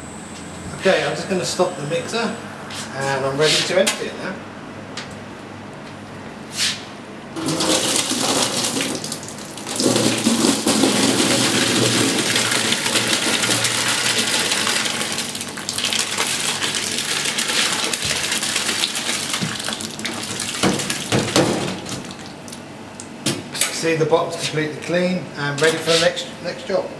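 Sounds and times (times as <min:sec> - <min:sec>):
thick stew pouring into metal tray: 0:07.4 - 0:20.0.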